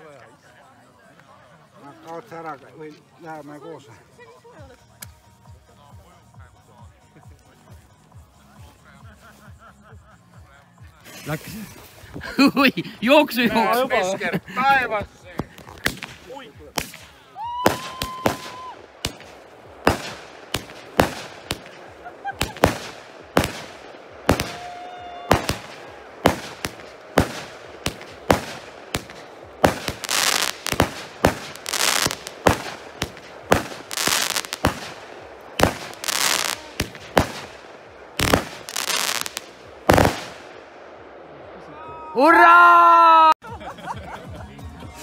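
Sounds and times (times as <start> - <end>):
firework crackling bursts: 11.1 - 41.3
firework bangs: 13.1 - 41.6
firework whistle: 16.8 - 35.0.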